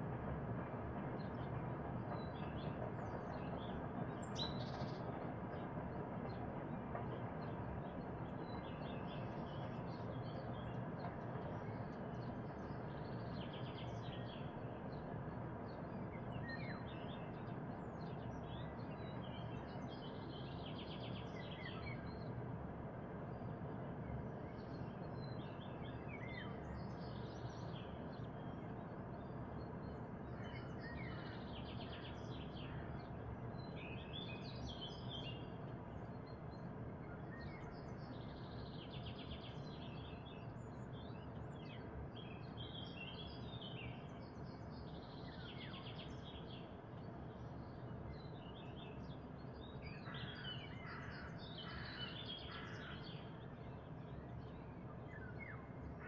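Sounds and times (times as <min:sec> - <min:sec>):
songbirds chirping and singing: 0:24.1 - 0:56.0.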